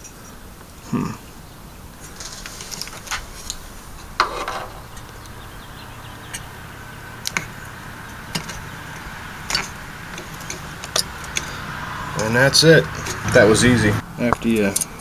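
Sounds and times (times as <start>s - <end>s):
rattling scrape: 2.0s - 6.6s, 7.2s - 13.6s
metal clip clicking and scraping: 7.2s - 7.5s, 8.3s - 11.6s.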